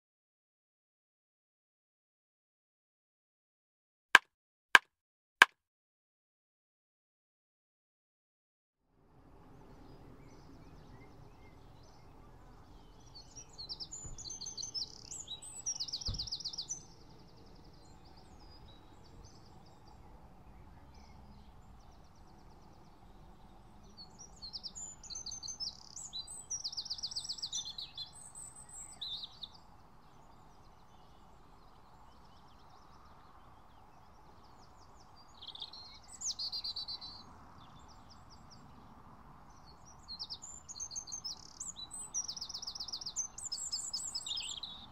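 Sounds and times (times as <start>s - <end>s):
songbirds singing: 9.4s - 44.9s.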